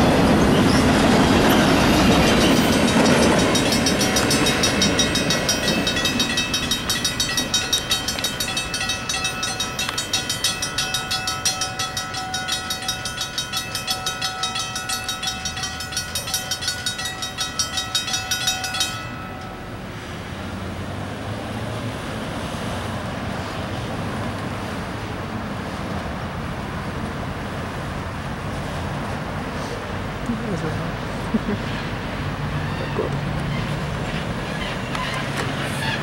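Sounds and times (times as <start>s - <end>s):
crossing bell ringing: 0.0s - 20.3s
freight train rolling on jointed track: 0.0s - 36.0s.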